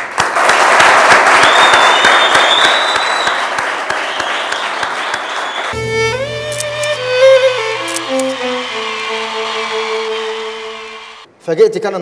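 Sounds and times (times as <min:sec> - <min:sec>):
audience applauding: 0:00.0 - 0:11.3
instrumental music: 0:05.7 - 0:11.3.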